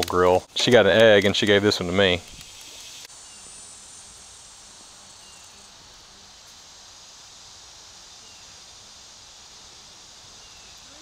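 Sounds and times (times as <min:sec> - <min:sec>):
high-pitched hiss: 0:00.0 - 0:11.0.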